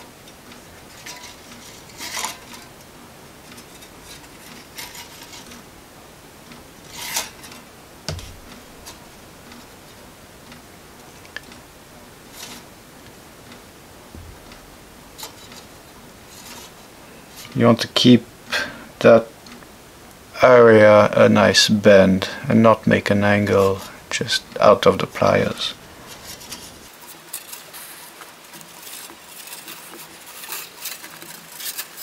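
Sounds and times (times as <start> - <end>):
pliers scraping and clicking wire: 0.9 - 2.8, 26.1 - 32.0.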